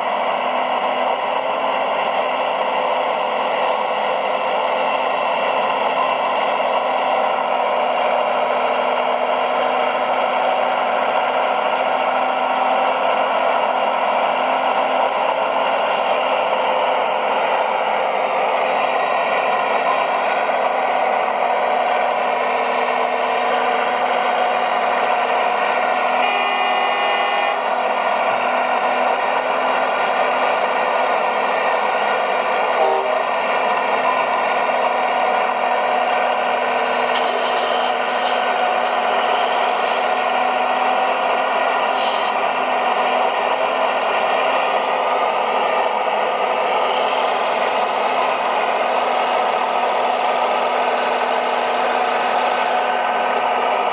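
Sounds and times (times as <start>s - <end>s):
model excavator hydraulics running: 0.0s - 53.9s.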